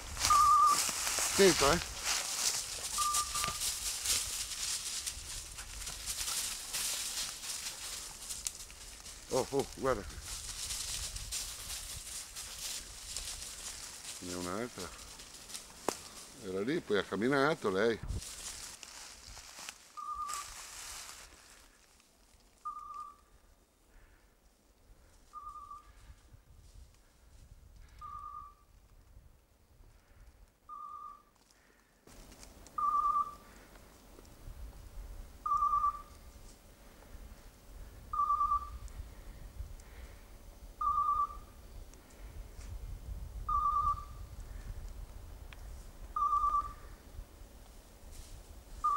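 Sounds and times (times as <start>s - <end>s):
brush rustling: 0.0s - 23.1s, 31.4s - 37.8s, 47.2s - 48.9s
beeper collar short beeps: 0.3s - 0.8s, 2.9s - 3.6s.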